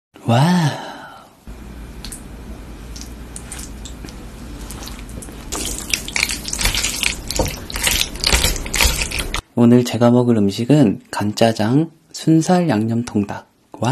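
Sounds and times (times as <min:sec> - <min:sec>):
low steady hum: 0:00.3 - 0:09.5
sticky squelching of noodles: 0:02.8 - 0:09.4
thick sauce pouring and dripping: 0:02.9 - 0:09.4.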